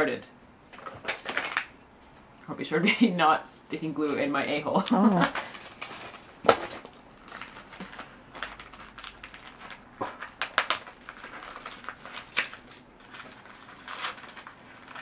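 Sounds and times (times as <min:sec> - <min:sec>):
wrapping paper crinkling: 0:04.8 - 0:15.0.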